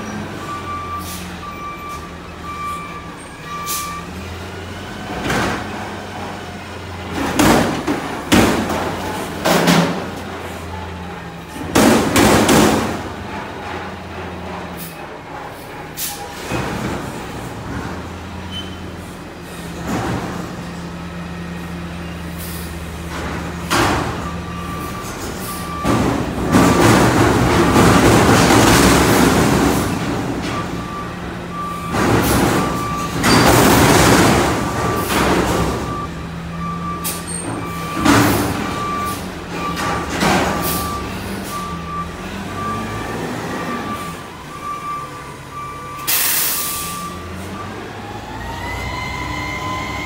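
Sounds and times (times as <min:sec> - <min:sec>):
truck engine droning: 0:00.0 - 0:50.0
backup alarm beeping: 0:00.4 - 0:04.2, 0:30.5 - 0:33.7, 0:34.5 - 0:48.6
loud metal bangs and clangs: 0:07.1 - 0:10.3, 0:11.3 - 0:18.7, 0:25.0 - 0:36.2, 0:36.8 - 0:39.0.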